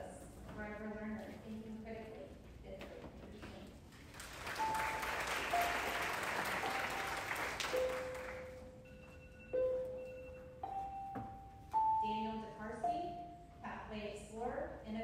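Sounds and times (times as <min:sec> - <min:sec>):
audience applauding: 0:04.1 - 0:08.6
background music long held notes: 0:04.6 - 0:08.6.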